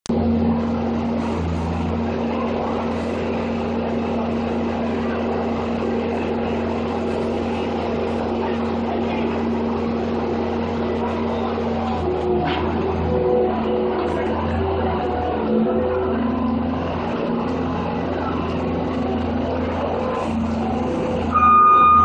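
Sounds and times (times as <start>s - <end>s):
loader engine running: 0.0s - 22.0s.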